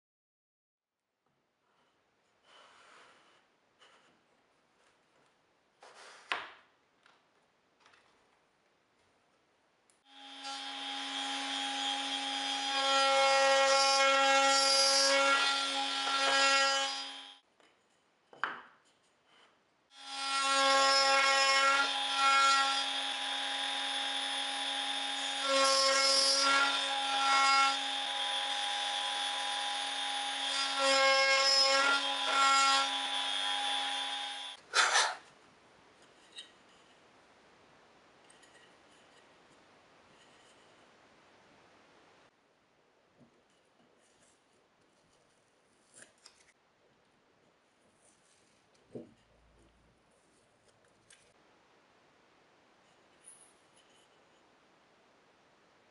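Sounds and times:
router whining: 10.1s - 12.8s, 21.9s - 25.6s, 26.7s - 35.0s
router bit cutting wood: 10.1s - 17.4s, 20.0s - 35.1s.

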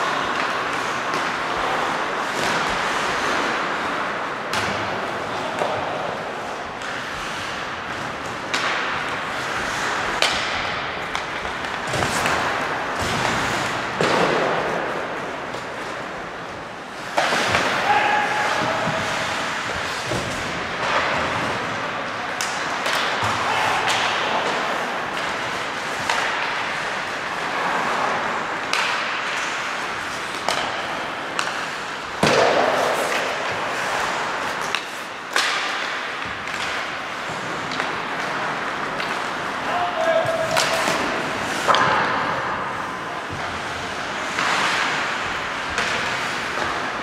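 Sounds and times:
hockey sticks and puck clacking: 0.0s - 47.0s
skates scraping ice: 0.0s - 47.0s.

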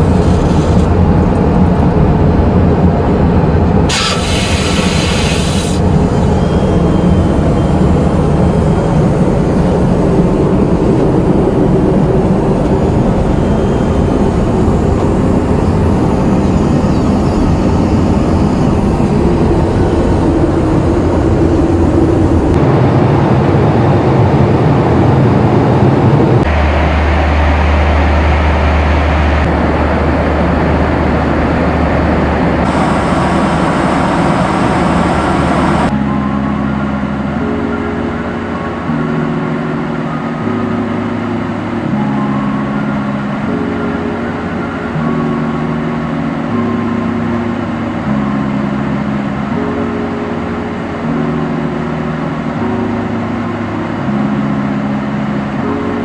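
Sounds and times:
airliner cabin rumble: 0.0s - 35.9s
brief hiss: 3.9s - 5.8s.

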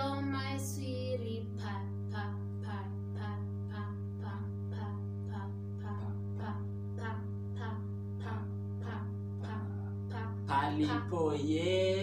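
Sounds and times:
steady low hum: 0.0s - 12.0s
person speaking: 2.2s - 12.0s.

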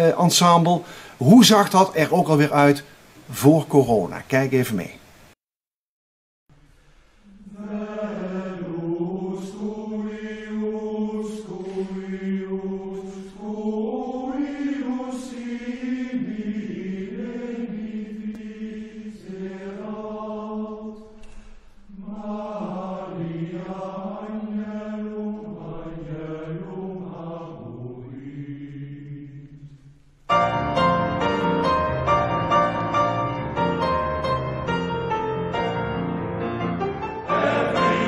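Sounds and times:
male voice choir singing: 7.4s - 21.2s, 21.9s - 29.8s, 37.2s - 38.0s.

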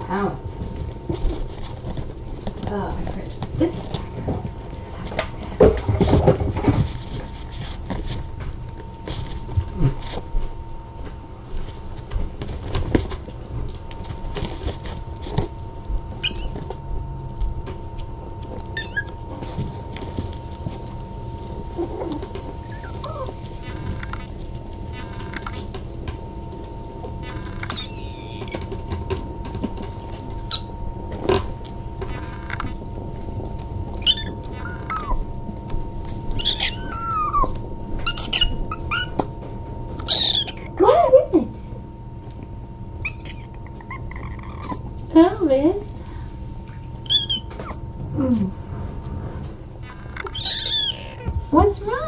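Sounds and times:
small paws and toys on floor: 0.0s - 52.0s
kitten squeak: 16.2s - 16.6s, 18.8s - 19.1s, 22.6s - 24.2s, 27.3s - 28.6s, 34.0s - 35.2s, 36.4s - 39.2s, 40.1s - 40.7s, 43.0s - 44.8s, 47.0s - 47.8s, 50.0s - 51.3s.

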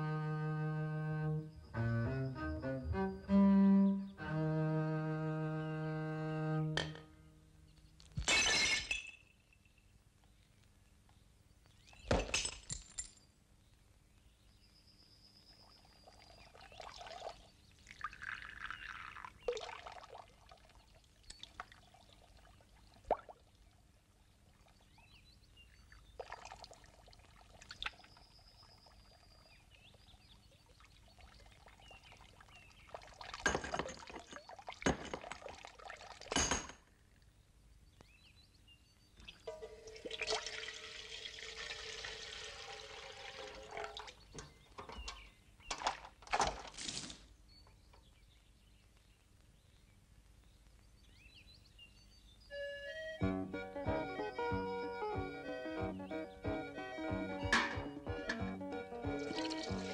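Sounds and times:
water running from tap: 40.0s - 44.1s, 59.1s - 59.9s
crockery knocks and clatters: 57.4s - 58.4s.

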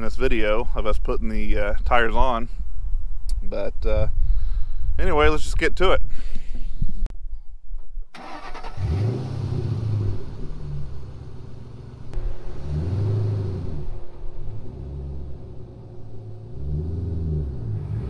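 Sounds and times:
car engine revving: 8.2s - 18.0s.

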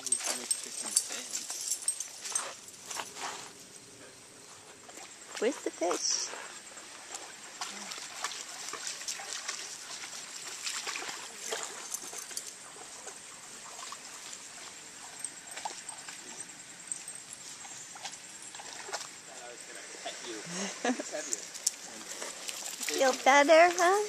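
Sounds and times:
stream trickling: 4.7s - 24.0s
dogs splashing in water: 6.8s - 19.3s, 21.3s - 24.0s.

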